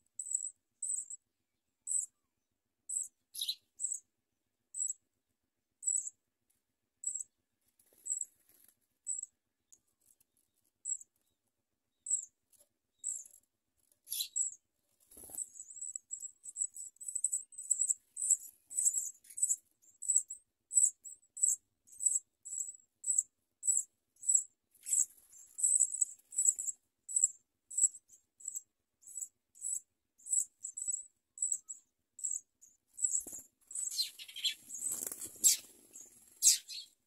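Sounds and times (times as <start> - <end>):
nestlings cheeping: 33.0 - 36.9.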